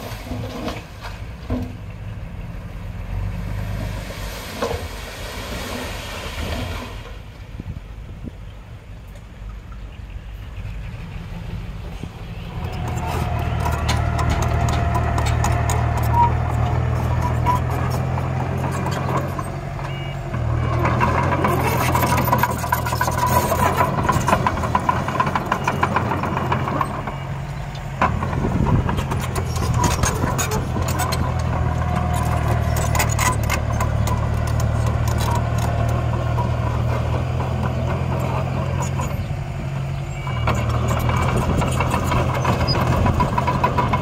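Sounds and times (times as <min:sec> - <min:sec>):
bulldozer diesel engine: 0:00.0 - 0:44.0
metal clanks and knocks: 0:12.5 - 0:27.2, 0:27.8 - 0:39.0.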